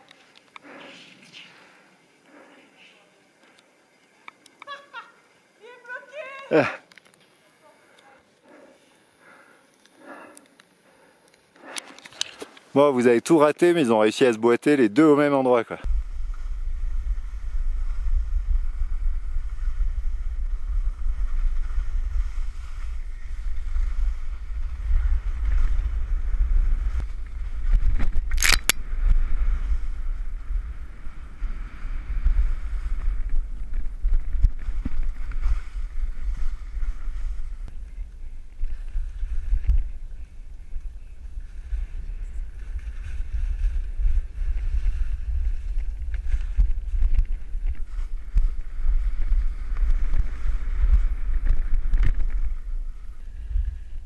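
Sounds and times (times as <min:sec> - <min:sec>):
wind buffeting microphone: 0:15.9 - 0:54.0
skis sliding on snow: 0:16.1 - 0:28.1, 0:29.0 - 0:54.0
sharp click: 0:28.3 - 0:28.8.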